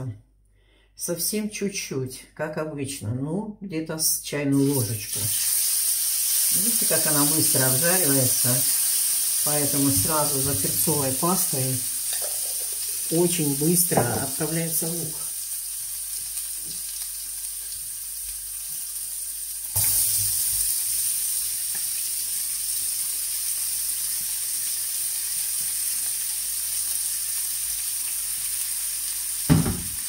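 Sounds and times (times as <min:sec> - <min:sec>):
oil sizzling in a frying pan: 0:04.6 - 0:30.0
short knock: 0:29.5 - 0:30.0.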